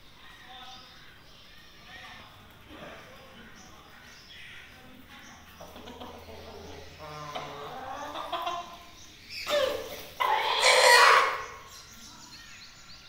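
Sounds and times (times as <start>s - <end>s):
chickens clucking: 2.5s - 12.1s.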